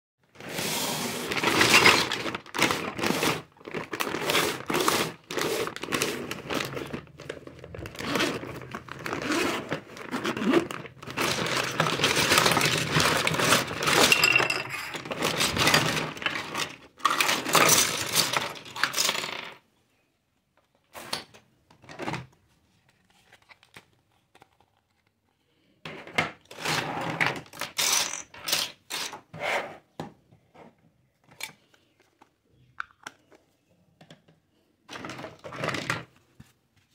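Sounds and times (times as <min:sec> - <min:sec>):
plastic toy pieces clattering: 0:01.1 - 0:19.6, 0:27.3 - 0:29.2
plastic bag crinkling: 0:01.3 - 0:16.7.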